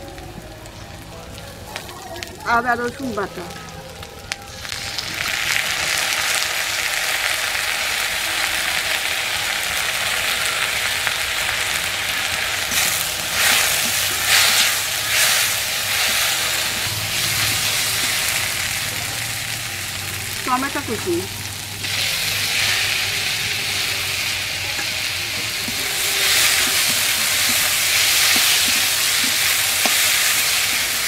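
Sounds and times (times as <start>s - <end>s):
paste sizzling in hot oil: 2.2s - 31.0s
metal spatula stirring: 12.6s - 18.5s, 21.8s - 31.0s.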